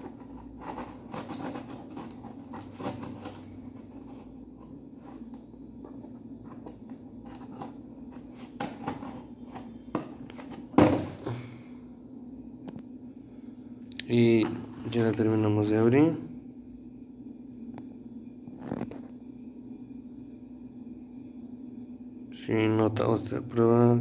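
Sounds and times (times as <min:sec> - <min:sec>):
tool scraping cardboard box: 0:00.0 - 0:10.8.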